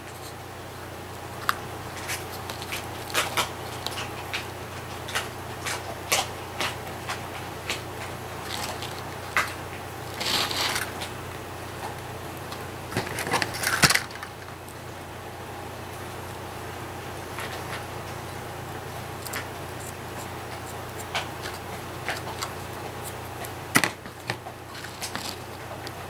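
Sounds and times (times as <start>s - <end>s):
paper and feather rustling: 6.6s - 11.2s, 24.1s - 26.0s.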